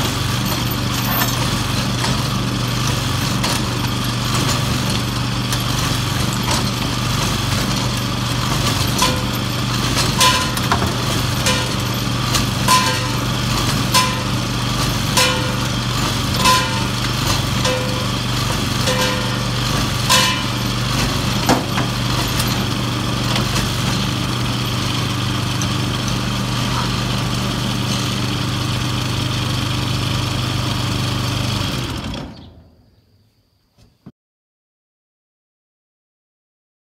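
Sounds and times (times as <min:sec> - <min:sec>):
engine running down: 0:00.0 - 0:32.6
small engine running: 0:00.0 - 0:32.6
metallic clanks: 0:07.6 - 0:24.0.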